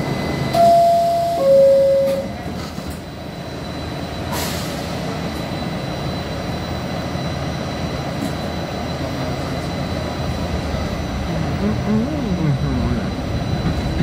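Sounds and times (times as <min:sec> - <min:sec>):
train rumble: 0:00.0 - 0:14.0
two-tone door chime: 0:00.5 - 0:02.4.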